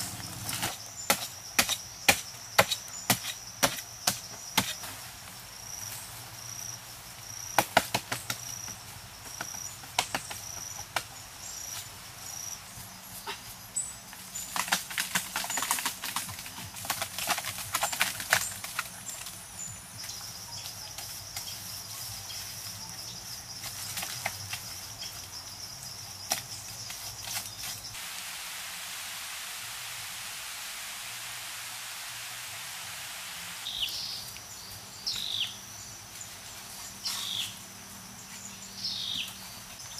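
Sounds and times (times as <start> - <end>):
insect chirping: 0.0 - 39.9
steady hiss: 25.4 - 39.9.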